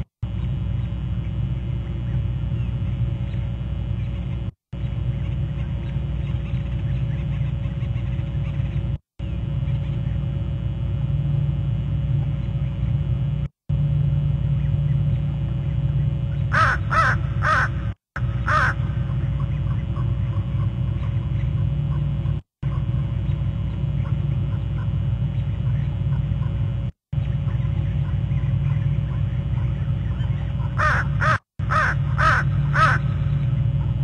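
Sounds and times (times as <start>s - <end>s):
low rumble and hum: 0.0s - 34.0s
small birds chirping: 0.3s - 10.4s, 14.4s - 34.0s
bird harsh calls: 16.4s - 22.0s, 27.2s - 33.6s.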